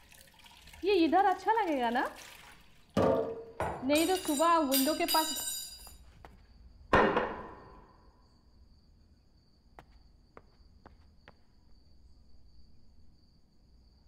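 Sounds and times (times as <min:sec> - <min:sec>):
glass jug ringing on glass table: 0:03.0 - 0:06.0.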